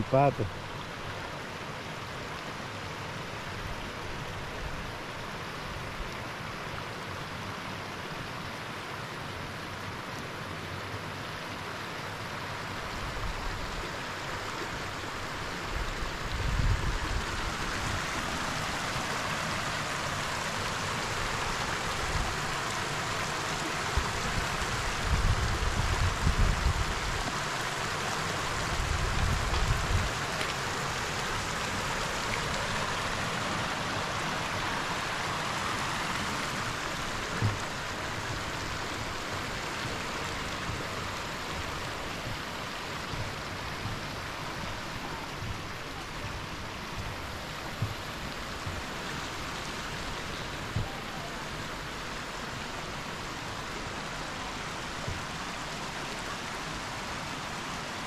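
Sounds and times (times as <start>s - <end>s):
river rushing over stones: 0.0s - 58.0s
low rumbles and thumps: 37.2s - 37.9s, 45.4s - 49.0s.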